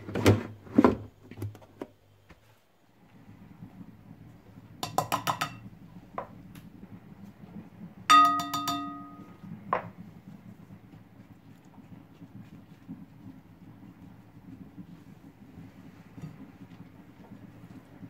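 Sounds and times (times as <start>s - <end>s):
measuring cup clinking on glass bowl: 4.8s - 5.7s, 8.1s - 9.4s
glass ringing: 8.1s - 9.4s.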